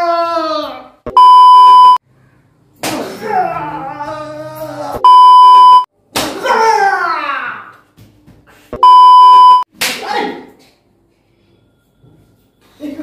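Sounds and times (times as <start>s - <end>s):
test-tone beeps: 1.1s - 2.0s, 5.0s - 5.9s, 8.8s - 9.6s
sharp smack: 9.7s - 10.2s.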